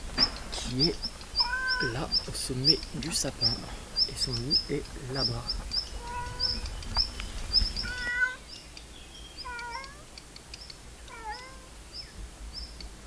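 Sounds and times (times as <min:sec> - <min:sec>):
bird alarm call: 0:00.0 - 0:13.0
cat meowing: 0:01.4 - 0:02.2, 0:05.9 - 0:06.7, 0:07.7 - 0:08.5, 0:09.4 - 0:10.1, 0:11.0 - 0:11.8.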